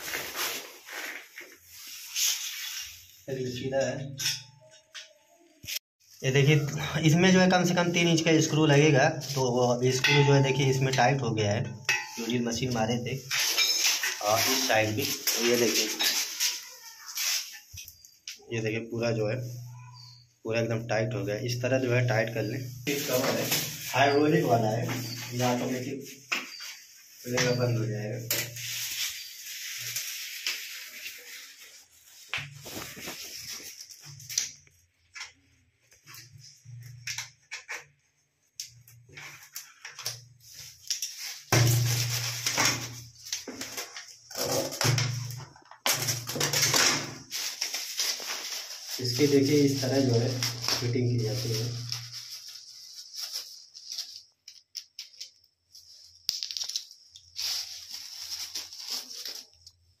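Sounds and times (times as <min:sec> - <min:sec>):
tissue paper rustling and crinkling: 0:00.0 - 0:03.4, 0:12.0 - 0:18.1, 0:22.1 - 0:34.7, 0:39.2 - 0:45.3, 0:45.9 - 1:00.0.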